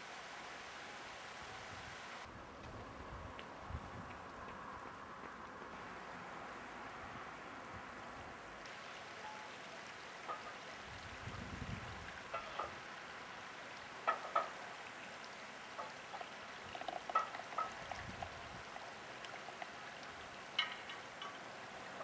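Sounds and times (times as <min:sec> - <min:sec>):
flowing water rushing: 0:00.0 - 0:02.3, 0:04.5 - 0:22.0
ducks splashing and bill-slapping: 0:09.6 - 0:22.0.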